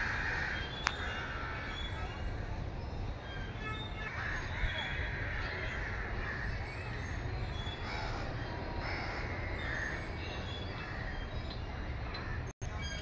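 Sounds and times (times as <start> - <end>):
crows cawing: 0.0 - 2.5, 4.1 - 6.6, 7.8 - 10.1.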